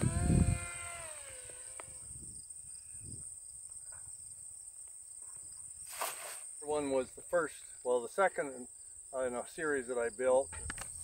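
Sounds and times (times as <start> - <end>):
model plane motor whining: 0.0 - 2.2
insect chirring: 0.0 - 4.3.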